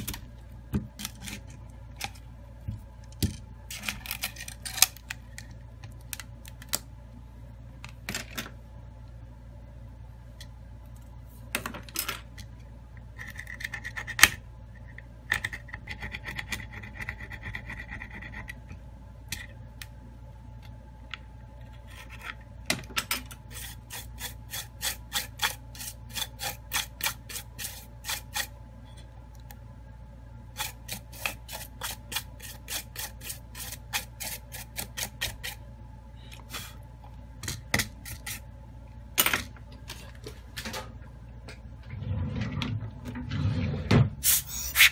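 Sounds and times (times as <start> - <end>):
brush scrubbing metal: 23.5 - 28.5, 30.6 - 35.6.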